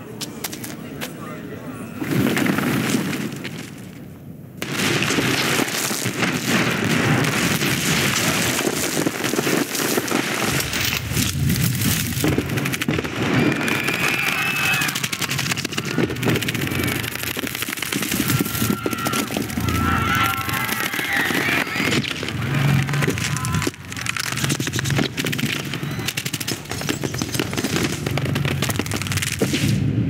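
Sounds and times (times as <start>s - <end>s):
earthen ceiling cracking and crumbling: 2.0s - 29.8s
low rumble: 18.1s - 26.0s.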